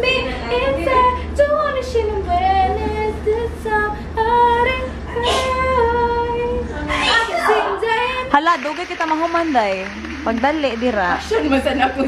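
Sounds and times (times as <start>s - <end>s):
woman singing: 0.0s - 9.0s
steady low hum: 0.0s - 12.0s.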